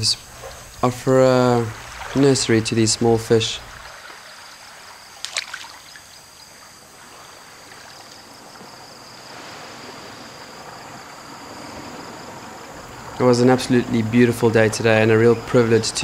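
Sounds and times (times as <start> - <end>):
water splash: 0.0 - 6.2
faint high whine: 0.0 - 16.0
water lapping and trickling: 0.0 - 16.0.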